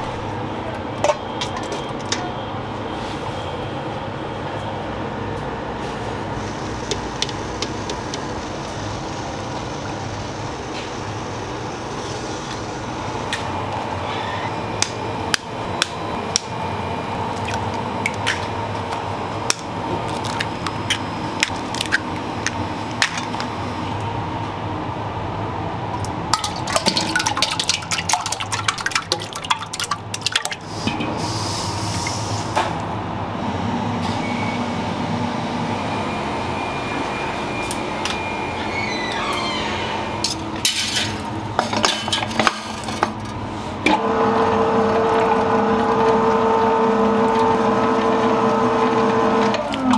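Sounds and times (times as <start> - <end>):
machine hum: 0.0 - 31.2, 32.2 - 49.9
liquid splashing: 26.0 - 30.8.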